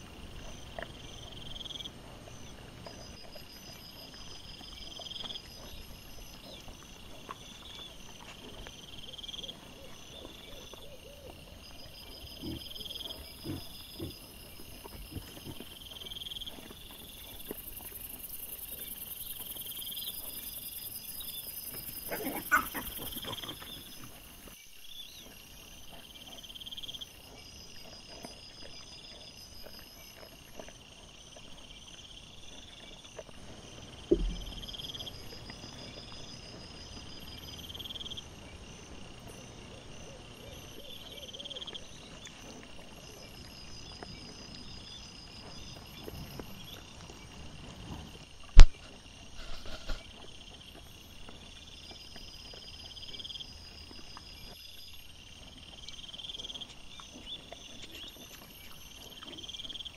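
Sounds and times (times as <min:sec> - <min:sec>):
crickets chirping: 0:00.0 - 0:59.9
loud thump: 0:34.1 - 0:34.7.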